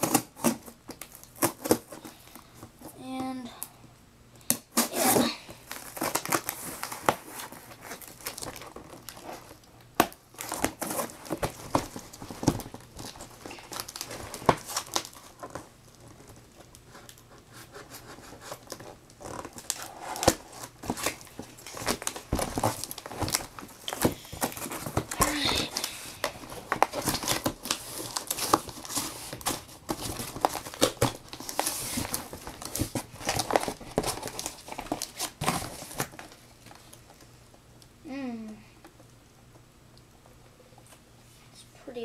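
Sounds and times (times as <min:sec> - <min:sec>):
cardboard box crinkling and tearing: 0:04.7 - 0:17.2, 0:17.9 - 0:37.0.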